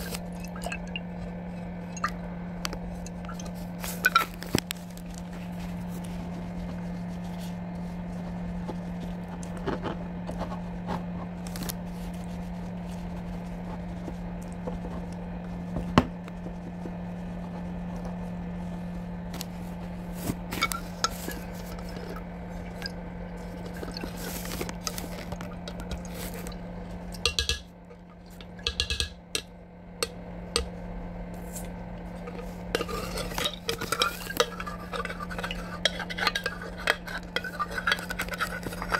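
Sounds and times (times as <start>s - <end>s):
low hum: 0.0s - 38.9s
metal utensils scraping pot: 3.0s - 4.5s, 20.5s - 26.5s, 27.2s - 27.7s, 28.4s - 29.5s, 31.6s - 38.9s.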